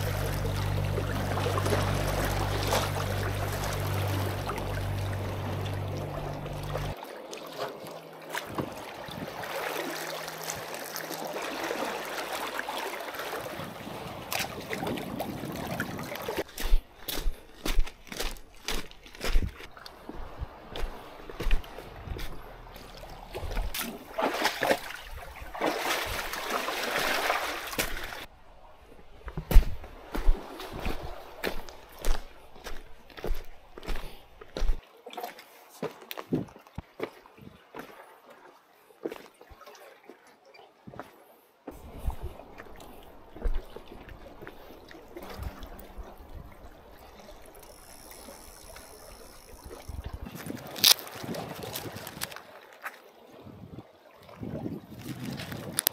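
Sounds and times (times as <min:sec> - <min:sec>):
water splashing: 0:00.0 - 0:28.3, 0:41.7 - 0:53.4
seawater lapping among rocks: 0:00.0 - 0:55.9
footsteps on pebbles and rocks: 0:16.4 - 0:25.1, 0:29.3 - 0:34.8, 0:50.3 - 0:52.4.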